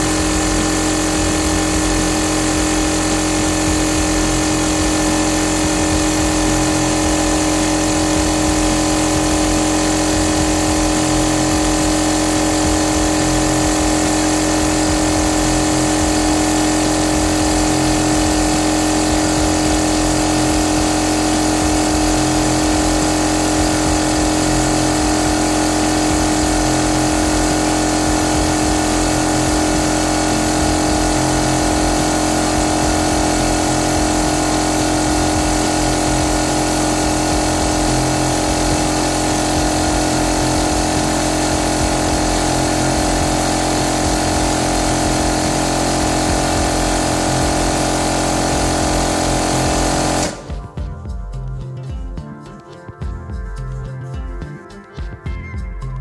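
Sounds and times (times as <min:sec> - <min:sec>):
air compressor humming: 0:00.0 - 0:51.5.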